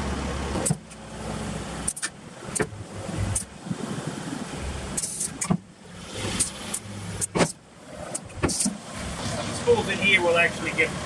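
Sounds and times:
truck engine humming: 0.0 - 11.0
exhaust air puffs: 4.9 - 7.5.

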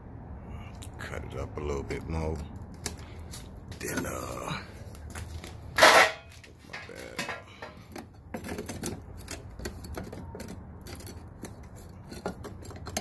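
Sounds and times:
sheet metal clicks and scrapes: 5.8 - 13.0.

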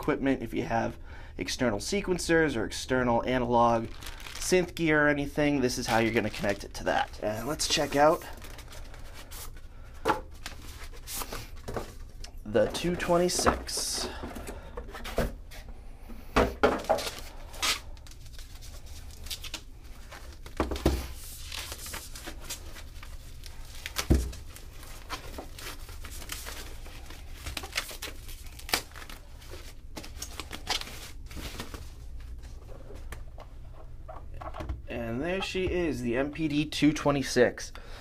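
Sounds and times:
plastic bag crinkling: 3.7 - 4.8.

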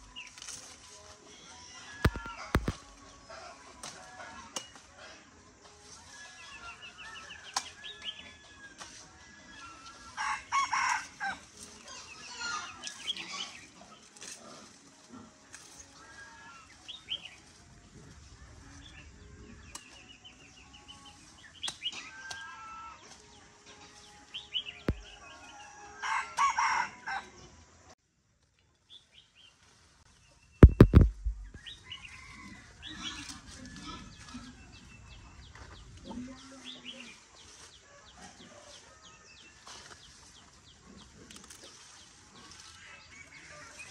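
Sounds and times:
chickens clucking: 1.4 - 5.4
loud sharp knock: 2.1 - 2.8, 30.6 - 31.6
rooster crowing: 10.2 - 11.4, 24.9 - 27.3
small birds chirping: 11.0 - 14.4, 15.5 - 25.3, 28.6 - 38.3.

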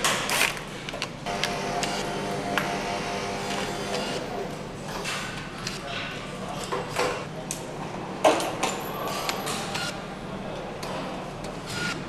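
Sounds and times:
steady low machine hum: 1.2 - 4.9.

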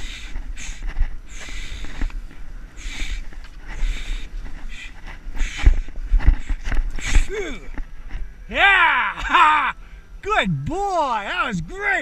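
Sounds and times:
skis hissing and scraping on snow: 0.0 - 7.3
wind rumble on microphone: 0.0 - 8.6.

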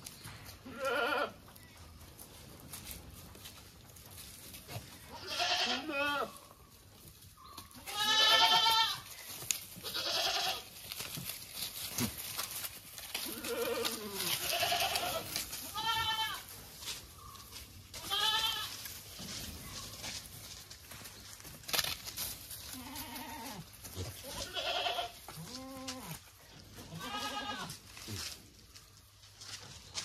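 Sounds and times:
goats bleating: 0.6 - 1.4, 5.1 - 6.4, 7.8 - 10.8, 13.2 - 16.5, 18.0 - 18.9, 22.7 - 26.2, 26.8 - 27.8.

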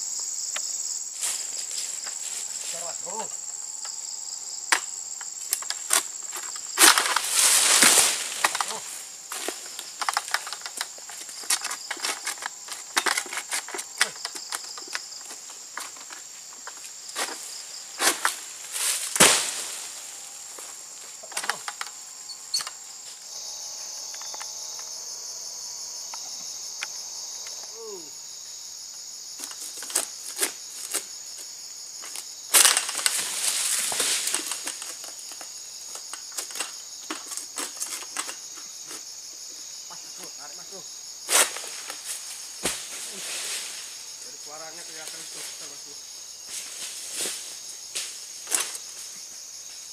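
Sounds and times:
insects droning: 0.0 - 49.9
sickle clicking and knocking: 4.7 - 17.4, 21.2 - 22.8, 29.4 - 31.1, 32.0 - 39.0
fronds crashing through leaves: 5.7 - 12.4, 15.2 - 21.7, 32.5 - 35.2, 41.3 - 45.8.

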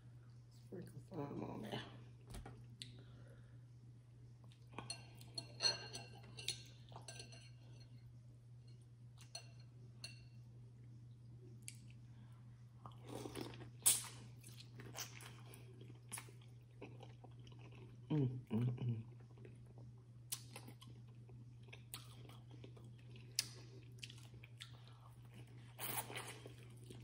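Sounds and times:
steady low hum: 0.0 - 27.0
chewing: 12.8 - 18.1, 18.7 - 27.0.

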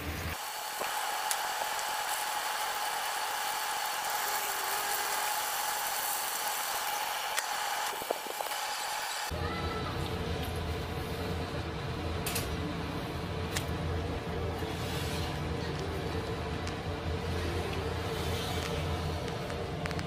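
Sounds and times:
food sizzling in oil: 0.0 - 9.3.

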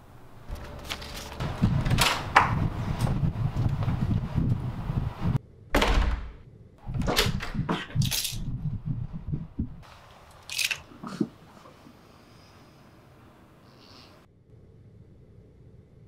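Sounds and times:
heavy wooden door thudding shut: 5.7 - 7.5
latch clicks and key jangles: 7.1 - 8.4, 10.4 - 10.8.

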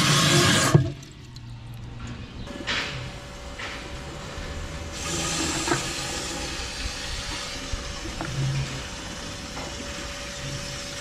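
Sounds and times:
water hissing into metal trough: 0.0 - 1.4, 4.9 - 11.0
steady machine hum: 0.0 - 11.0.

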